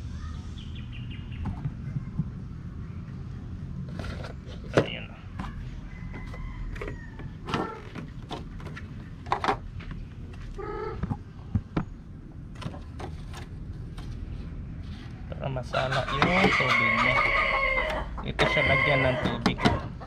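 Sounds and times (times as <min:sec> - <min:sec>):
plastic trays clicking and knocking: 0:19.2 - 0:20.0.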